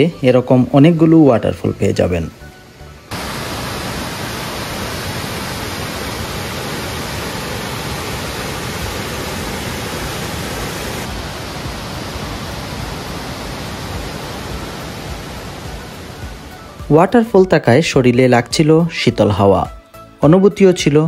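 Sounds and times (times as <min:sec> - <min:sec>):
waterfall rushing: 0:02.4 - 0:17.0.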